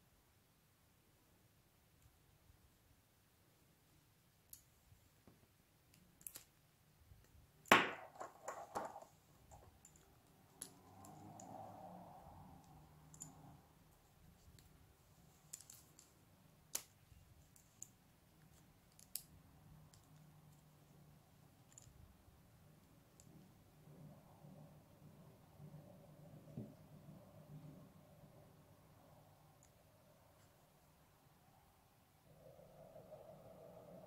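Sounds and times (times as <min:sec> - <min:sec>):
cord rustling: 0:07.2 - 0:22.2.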